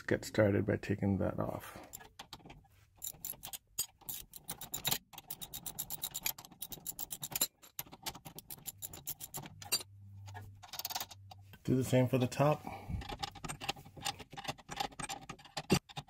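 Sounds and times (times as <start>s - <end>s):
metal tool scraping on bolt: 1.9s - 11.3s
ratcheting wrench clicking: 3.0s - 9.7s.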